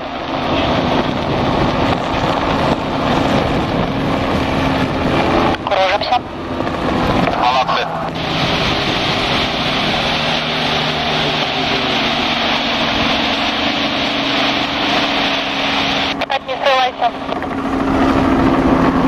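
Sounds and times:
helicopter engine and rotor drone: 0.0 - 19.0
brief radio voice: 16.2 - 17.2.

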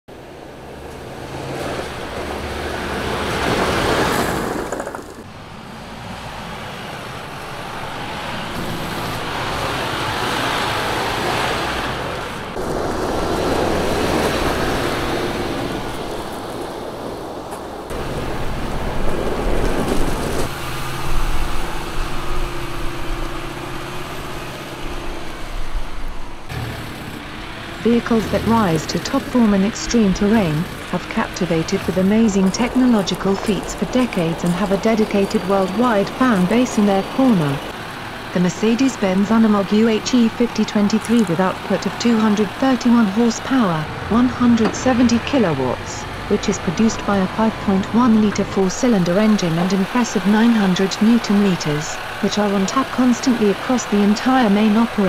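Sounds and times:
diesel truck engine running: 0.1 - 55.0
tyres on gravel: 0.9 - 5.3, 26.5 - 45.6.

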